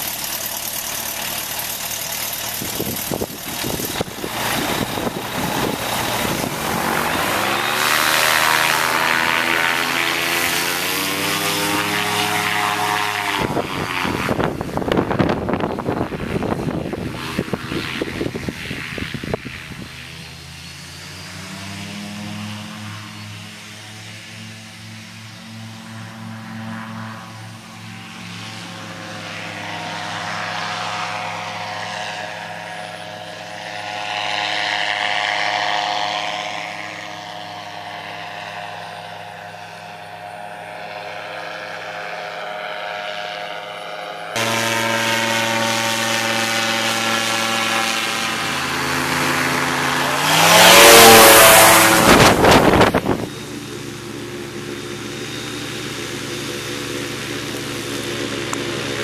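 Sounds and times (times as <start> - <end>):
powered parachute engine droning: 0.0 - 59.0
loud rushing noise: 2.6 - 12.0, 44.4 - 53.4.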